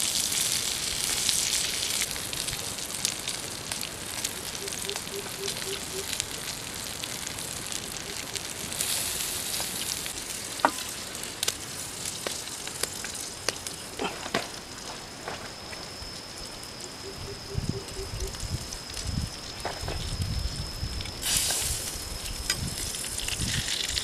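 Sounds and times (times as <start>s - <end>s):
meat sizzling on hot stone: 0.0s - 24.0s
fat popping and wood crackling: 1.1s - 17.0s.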